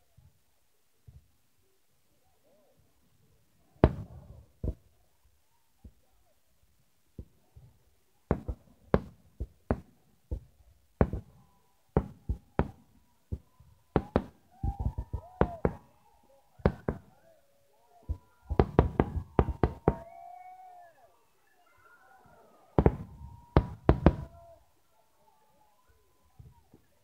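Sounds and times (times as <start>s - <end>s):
fireworks bangs: 3.8s - 4.9s, 8.3s - 15.9s, 16.6s - 17.1s, 18.1s - 20.1s, 22.8s - 24.4s.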